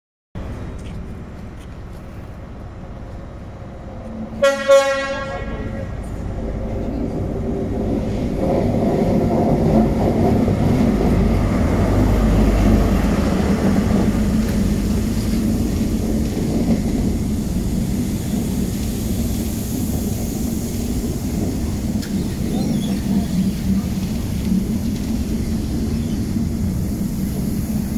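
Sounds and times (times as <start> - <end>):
train coaches rolling past: 0.4 - 27.9
diesel engine passing: 2.5 - 27.9
train horn blast: 4.3 - 6.1.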